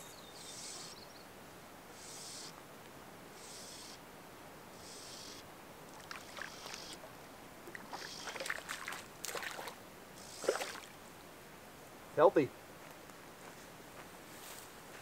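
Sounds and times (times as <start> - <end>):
fish splashing in water: 7.7 - 9.8, 10.4 - 10.9.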